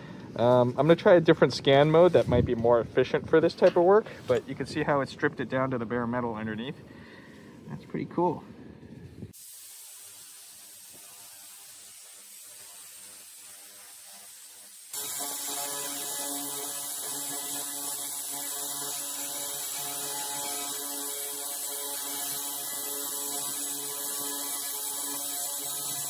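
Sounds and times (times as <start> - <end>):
faint hiss: 6.2 - 15.0
laser cleaner buzzing hum: 10.6 - 26.0.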